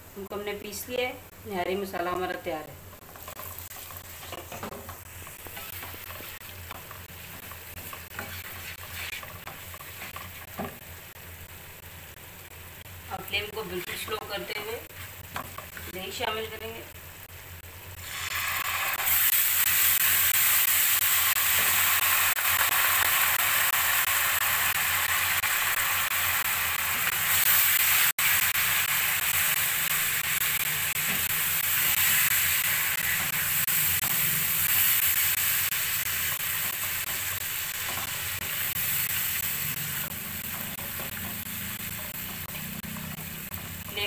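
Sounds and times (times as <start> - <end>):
yogurt sizzling in hot oil: 2.7 - 44.0
spatula stirring in pan: 2.9 - 11.0, 28.9 - 44.0.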